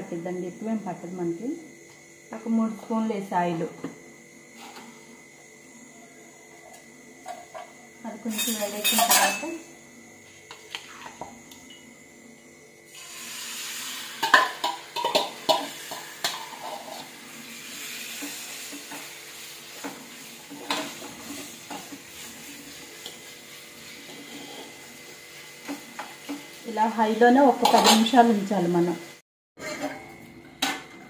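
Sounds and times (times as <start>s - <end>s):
liver sizzling in hot oil: 12.9s - 29.2s
steel ladle scraping a pan: 13.9s - 19.0s, 24.0s - 24.8s, 27.6s - 28.2s, 29.6s - 30.0s.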